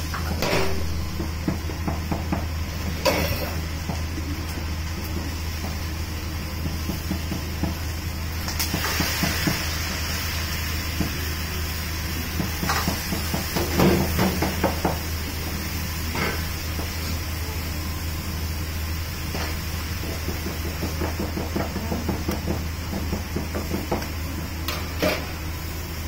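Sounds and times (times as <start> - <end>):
broth hissing in hot wok: 0.0 - 26.0
food stir-frying in wok: 0.0 - 26.0
low hum: 0.3 - 1.8.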